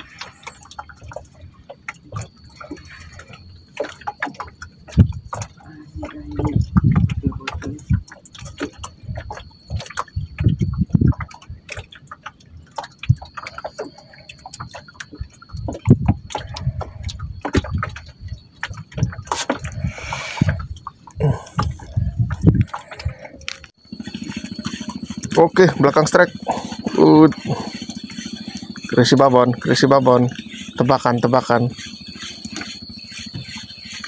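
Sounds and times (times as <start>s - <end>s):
small waves lapping against canoe: 0.0s - 34.0s
knocks and clicks: 3.7s - 34.0s
faint steady high tone: 21.2s - 34.0s.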